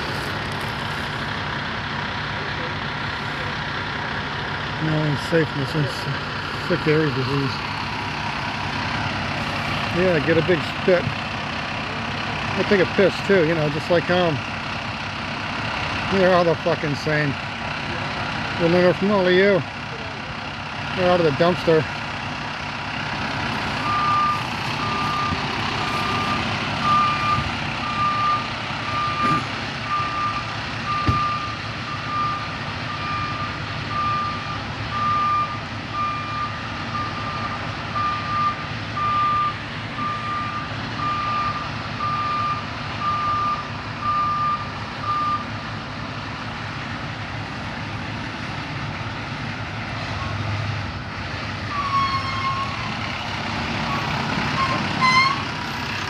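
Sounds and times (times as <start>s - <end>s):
low engine rumble: 0.0s - 56.0s
truck reversing alarm beeping: 22.3s - 45.6s, 51.6s - 56.0s.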